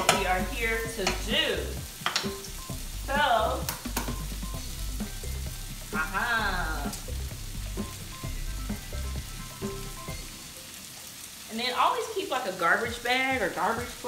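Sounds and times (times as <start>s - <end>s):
vegetables sizzling in a pan: 0.0s - 14.0s
egg cracking taps: 2.0s - 2.5s, 3.6s - 4.3s.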